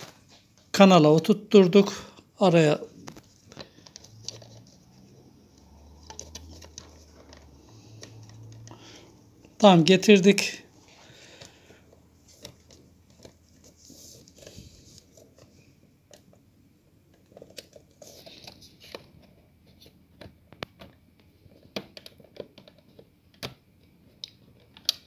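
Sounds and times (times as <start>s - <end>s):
plastic rustling: 2.8s - 25.0s.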